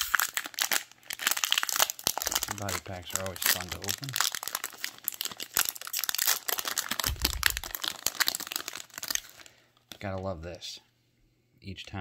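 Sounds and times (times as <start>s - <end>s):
plastic wrapper tearing and crinkling: 0.0s - 10.2s.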